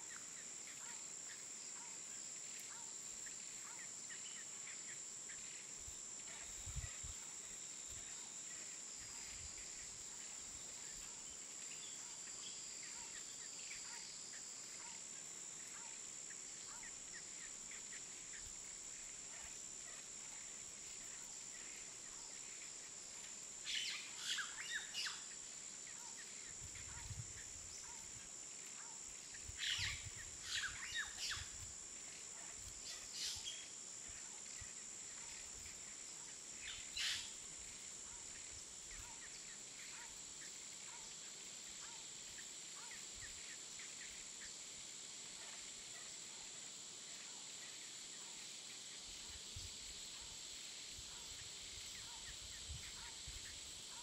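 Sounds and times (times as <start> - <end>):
high-pitched insect drone: 2.4 - 54.0.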